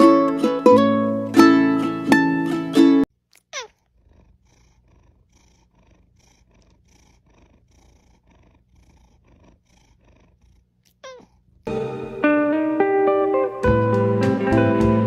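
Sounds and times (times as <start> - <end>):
cat purring: 3.3 - 11.7.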